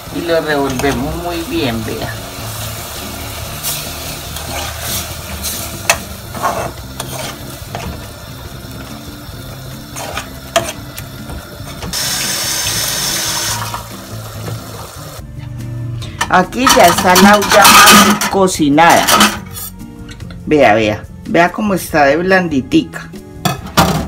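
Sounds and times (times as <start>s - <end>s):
food sizzling in pot: 0.0s - 15.2s, 16.2s - 20.1s
soft background music: 0.0s - 24.0s
metal spoon scraping pot: 3.6s - 8.0s, 9.9s - 10.8s, 16.6s - 18.4s.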